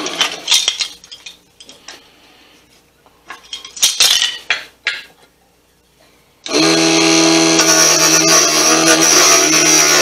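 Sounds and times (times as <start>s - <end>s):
lathe motor whining: 6.5s - 10.0s.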